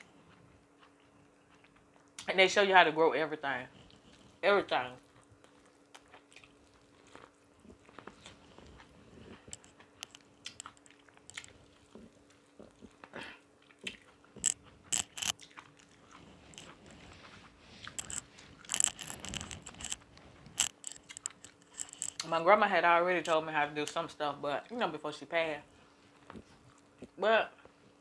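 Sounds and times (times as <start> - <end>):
chewing corn crunches: 0.0 - 2.3, 3.7 - 22.4
wet mouth clicks: 9.4 - 11.5, 13.7 - 16.8, 17.8 - 20.0, 20.6 - 22.3.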